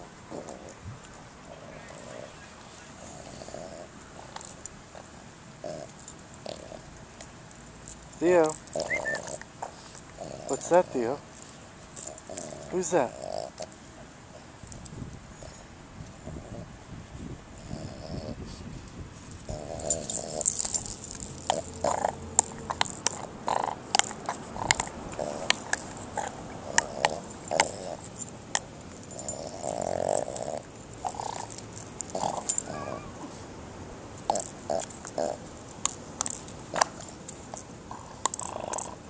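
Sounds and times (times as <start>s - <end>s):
dog snuffling: 0.0s - 7.0s, 7.6s - 14.6s, 17.6s - 33.5s
dog chewing and crunching: 0.0s - 16.6s, 19.2s - 32.8s, 34.1s - 39.0s.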